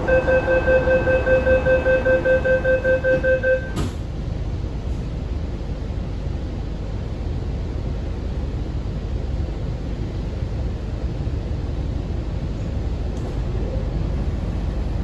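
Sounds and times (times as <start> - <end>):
door warning beeps: 0.0 - 3.9
train low rumble: 0.0 - 15.0
train doors shutting thud: 3.0 - 4.1.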